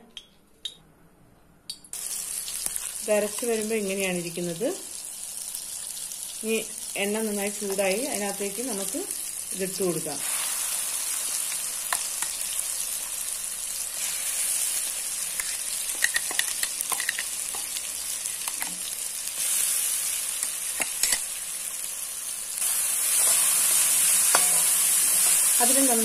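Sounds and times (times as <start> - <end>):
paste sizzling in hot oil: 4.2 - 26.0
metal spoon stirring in pan: 23.0 - 25.6.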